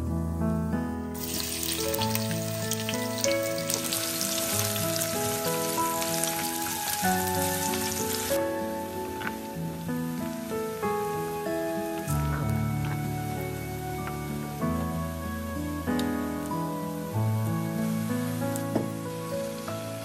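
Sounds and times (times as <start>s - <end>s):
background music: 0.0s - 20.0s
onion sizzling in hot oil: 1.2s - 20.0s.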